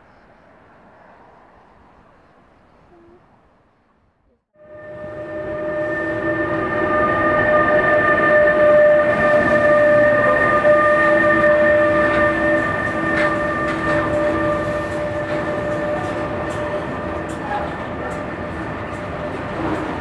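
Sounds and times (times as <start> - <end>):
locomotive whine: 4.6 - 20.0
train wheels rumbling on rail: 4.7 - 20.0
wheels clicking over rail joints: 12.0 - 20.0.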